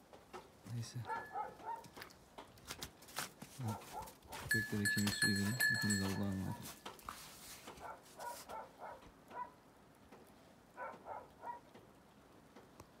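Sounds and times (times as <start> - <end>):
faint dog barking: 1.0 - 2.0, 3.6 - 4.5, 6.4 - 6.8, 7.7 - 9.6, 10.7 - 11.8.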